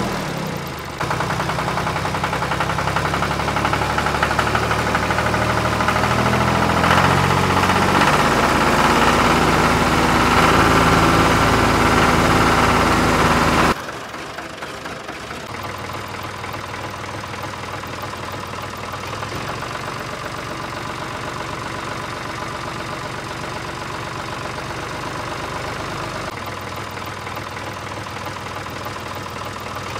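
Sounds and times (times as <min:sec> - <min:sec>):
loud engine changing pitch: 0:00.0 - 0:13.8.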